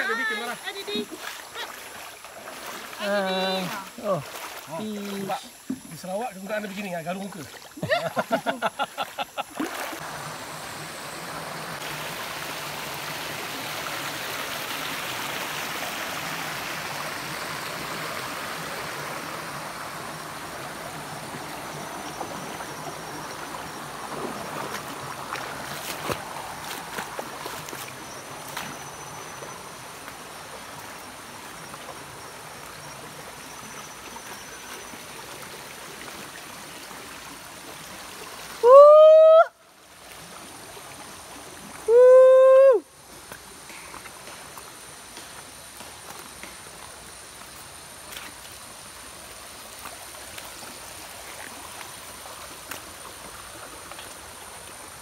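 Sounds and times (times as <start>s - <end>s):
stream running over rocks: 0.0s - 55.0s.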